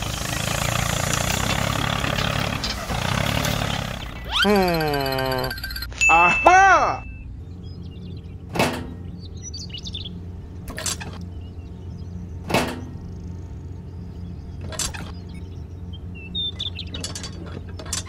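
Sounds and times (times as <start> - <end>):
steady low hum: 0.0 - 18.0
faint high chirps: 4.2 - 8.4.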